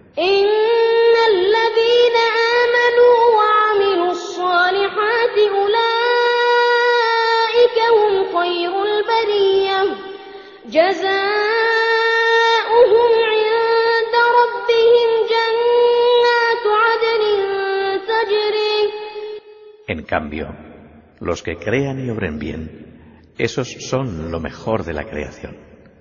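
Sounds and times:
high voice chanting: 0:19.2 - 0:22.8.

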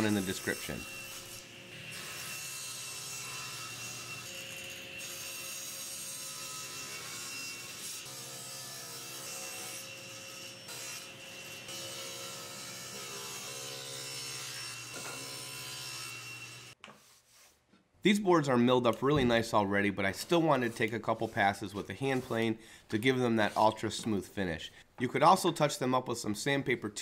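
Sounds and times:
table saw motor hum and blade whine: 0:00.0 - 0:16.8
saw blade cutting wood: 0:00.0 - 0:17.1, 0:20.0 - 0:24.2.

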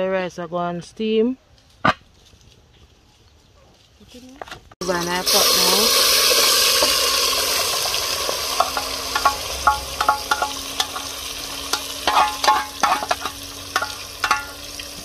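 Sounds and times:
liver and vegetables sizzling in oil: 0:04.8 - 0:15.0
bowl scraping against metal pot: 0:08.5 - 0:15.0.

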